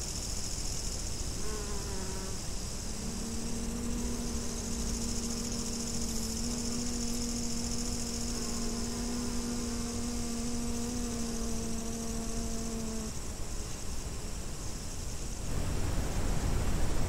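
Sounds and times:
grasshoppers chirping: 0:00.2 - 0:13.2
bee buzzing: 0:01.1 - 0:14.3
low wind rumble: 0:02.4 - 0:14.2.

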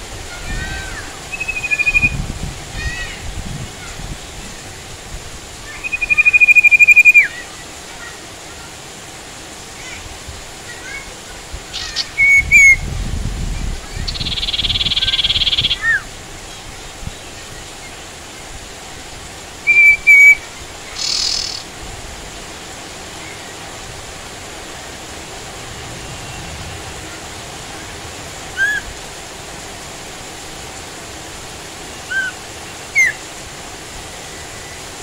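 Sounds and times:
rain hiss: 0:00.0 - 0:35.0
bird buzzy trill: 0:00.6 - 0:02.2, 0:05.8 - 0:07.3, 0:19.7 - 0:21.7
bird whistled notes: 0:01.3 - 0:02.2, 0:05.8 - 0:07.4, 0:11.8 - 0:12.8, 0:19.7 - 0:20.4, 0:21.0 - 0:21.6, 0:28.6 - 0:28.9, 0:32.1 - 0:33.2.

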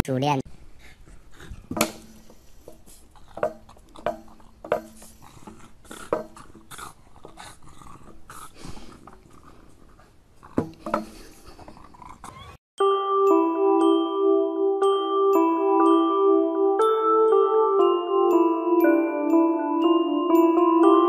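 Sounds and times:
stick knocking on metal gate bars: 0:03.4 - 0:05.0.

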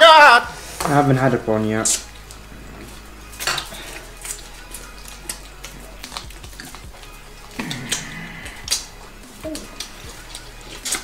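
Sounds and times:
tableware clinking: 0:03.4 - 0:04.0.

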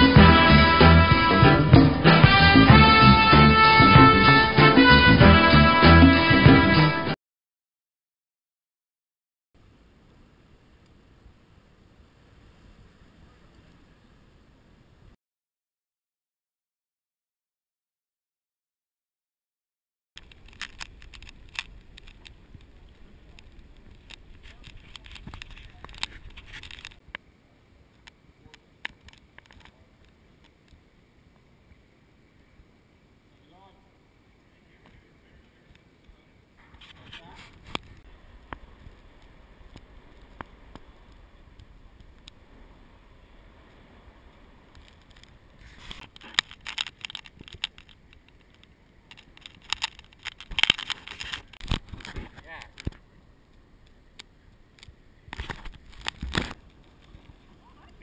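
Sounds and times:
faint background noise: 0:09.6 - 0:15.2, 0:20.2 - 0:58.0
kayak and paddle clicks: 0:20.2 - 0:27.3, 0:27.9 - 0:30.8, 0:37.6 - 0:42.4, 0:43.6 - 0:57.5.

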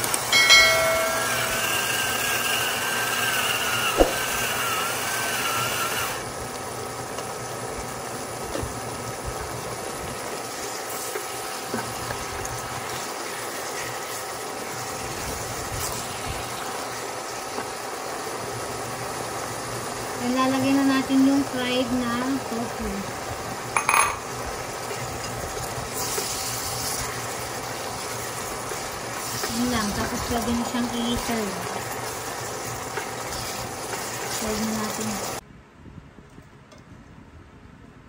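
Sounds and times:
pot cooking hum and hiss: 0:00.0 - 0:35.4
sharp knock: 0:04.0 - 0:04.2.

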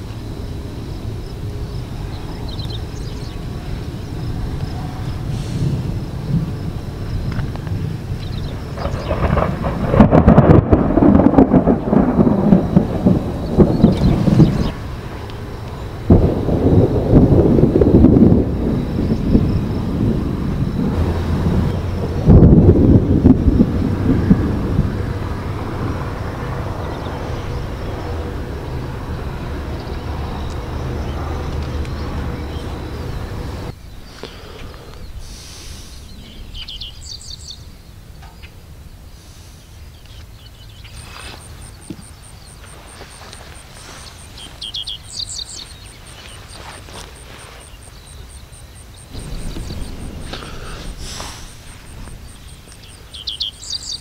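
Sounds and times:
birds chirping: 0:00.0 - 0:16.9, 0:25.1 - 0:54.0
thunder rumbling: 0:00.0 - 0:34.1, 0:48.3 - 0:54.0.

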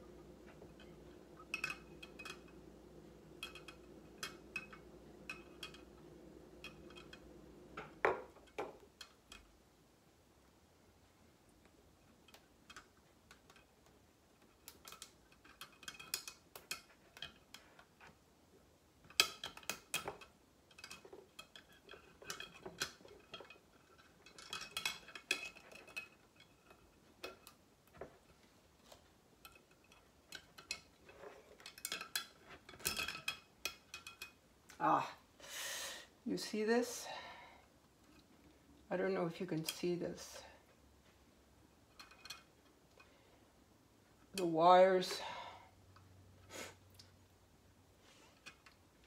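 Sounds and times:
thin metal wires clinking: 0:00.0 - 0:09.6, 0:12.2 - 0:18.2, 0:19.0 - 0:35.0, 0:41.8 - 0:43.1.

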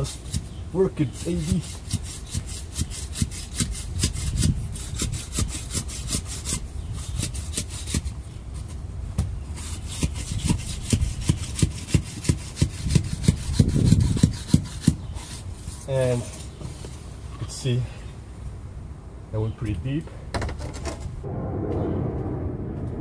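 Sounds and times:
metal rod scraping in wet soil: 0:01.0 - 0:03.6.

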